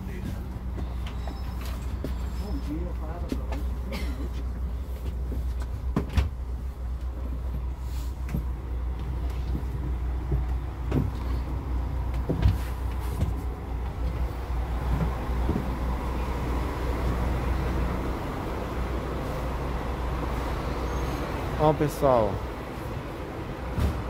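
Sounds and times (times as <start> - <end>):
bus engine rumbling: 0.0 - 24.0
knocks and clunks: 4.3 - 6.4, 8.2 - 15.9.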